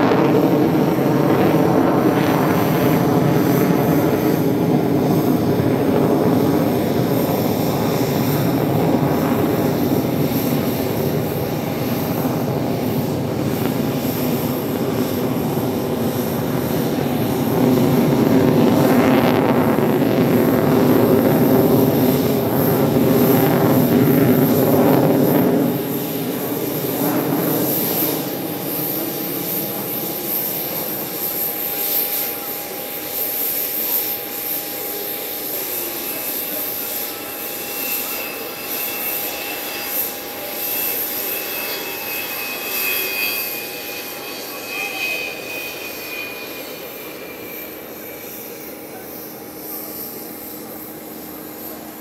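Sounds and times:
jet engines roaring overhead: 0:00.0 - 0:52.0.

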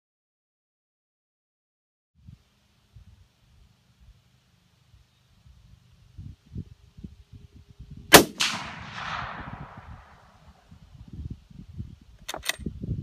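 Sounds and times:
rifle shot echoing: 0:08.1 - 0:10.5.

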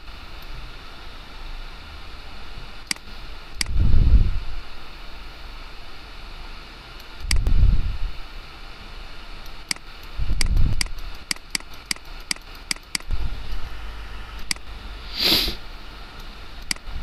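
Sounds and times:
faint steady hiss: 0:00.0 - 0:17.0
computer mouse clicking: 0:09.4 - 0:13.1, 0:14.4 - 0:14.8, 0:16.2 - 0:17.0.

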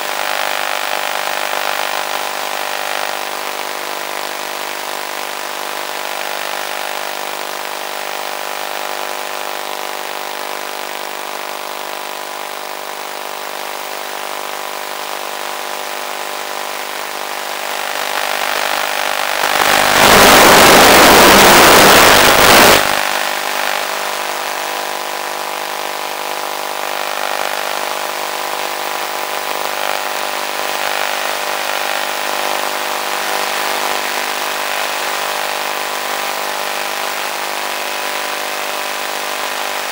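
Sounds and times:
electric motor and propeller: 0:17.4 - 0:23.7
loud rushing noise: 0:17.8 - 0:23.6.

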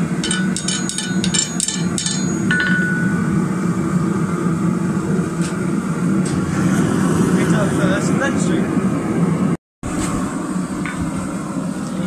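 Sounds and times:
steady low hum: 0:00.0 - 0:12.0
hammer ringing taps on metal: 0:00.2 - 0:03.3
metal clink on anvil: 0:00.2 - 0:03.3.

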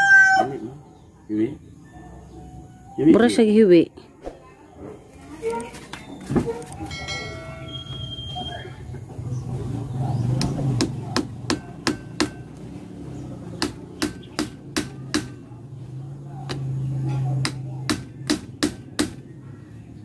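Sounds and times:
hammer striking wood: 0:10.4 - 0:12.5, 0:13.6 - 0:15.4, 0:17.4 - 0:19.2.

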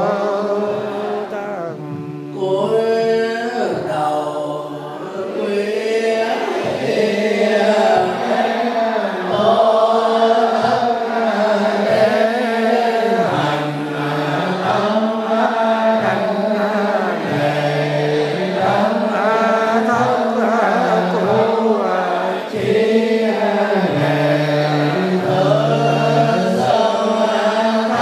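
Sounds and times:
monks chanting: 0:00.0 - 0:28.0.

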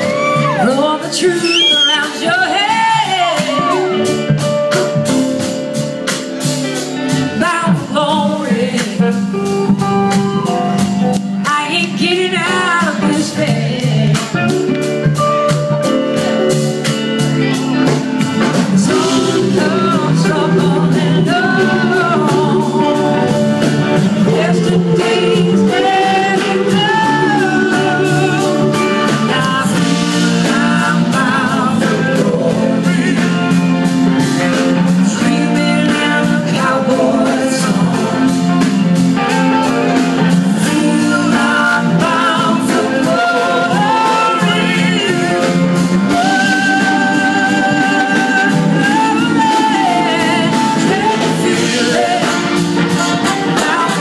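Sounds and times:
person singing: 0:00.0 - 0:04.7, 0:07.2 - 0:14.7, 0:17.8 - 0:39.4, 0:40.3 - 0:54.0
drums: 0:00.0 - 0:54.0
electric guitars: 0:00.0 - 0:54.0.

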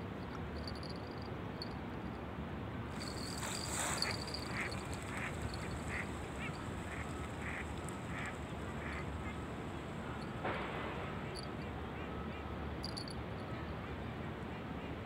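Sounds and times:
low background noise: 0:00.0 - 0:15.0
ducks quacking: 0:04.0 - 0:09.4.

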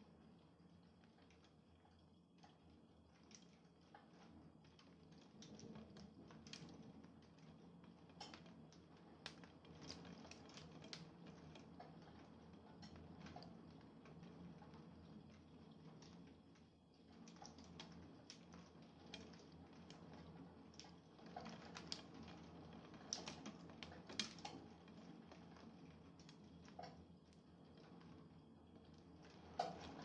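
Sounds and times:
raindrops tapping hard surface: 0:17.2 - 0:27.9, 0:28.8 - 0:30.0.

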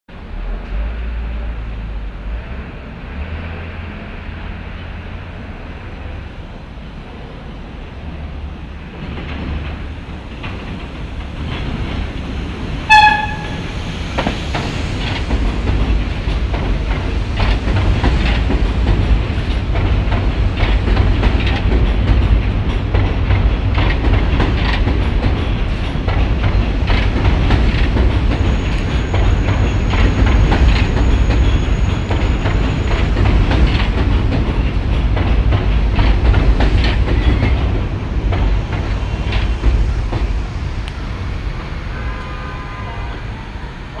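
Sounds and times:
train rumbling: 0:00.1 - 0:44.0
wheels clacking over rail joints: 0:08.1 - 0:41.0
subway train horn blast: 0:12.8 - 0:13.9, 0:41.7 - 0:44.0.

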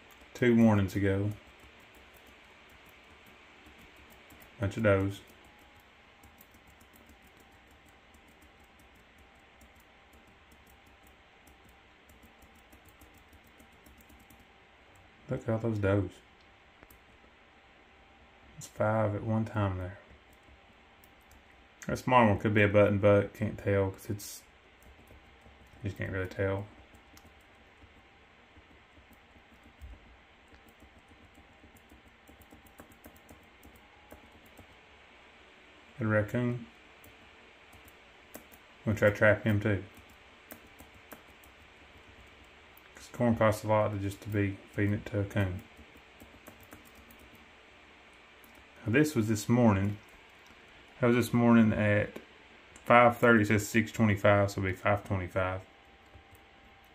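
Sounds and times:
computer mouse clicking: 0:00.0 - 0:00.4, 0:01.2 - 0:15.1, 0:24.8 - 0:34.8, 0:37.0 - 0:39.2, 0:39.9 - 0:43.0, 0:44.1 - 0:47.5, 0:48.4 - 0:48.7
faint rapid high ticking: 0:00.0 - 0:15.1.

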